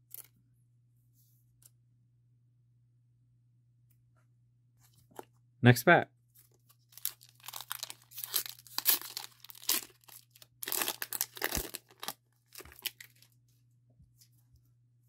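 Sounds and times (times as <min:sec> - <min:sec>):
foil wrapper tearing and crinkling: 0:06.8 - 0:13.3.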